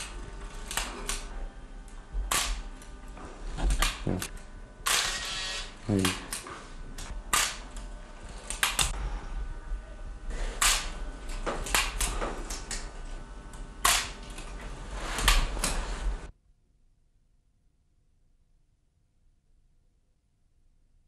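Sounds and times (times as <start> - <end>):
low mains hum: 0.0 - 21.0.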